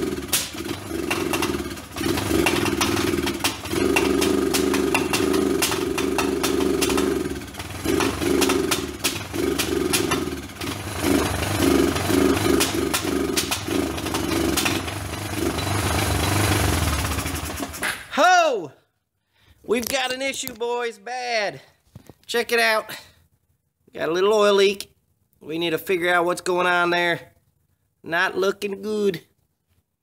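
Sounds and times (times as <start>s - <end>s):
engine running unevenly: 0.0s - 17.9s.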